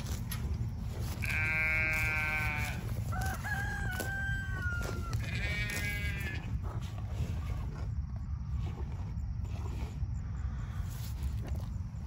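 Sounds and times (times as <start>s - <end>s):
cow cropping grass: 0.0s - 12.0s
rooster crowing: 2.2s - 5.9s
steady low rumble: 4.4s - 12.0s.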